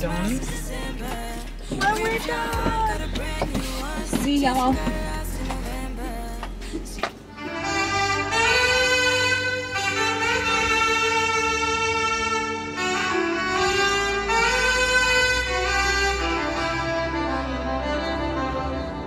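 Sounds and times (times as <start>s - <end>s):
soft accompaniment: 0.0s - 19.0s
slow saxophone melody: 7.3s - 19.0s.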